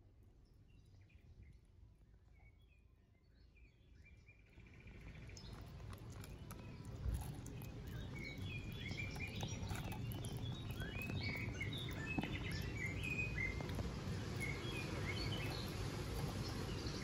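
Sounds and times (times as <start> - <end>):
steady low outdoor hum: 0.0 - 17.0
small birds chirping: 2.3 - 17.0
kittens eating wet food: 4.6 - 17.0.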